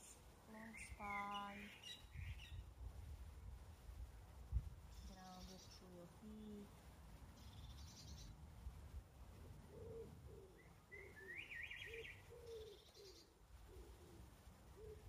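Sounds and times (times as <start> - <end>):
faint low rumble: 0.0 - 11.3
warbled bird phrase: 0.5 - 2.5
high rapid bird trills: 0.5 - 2.7.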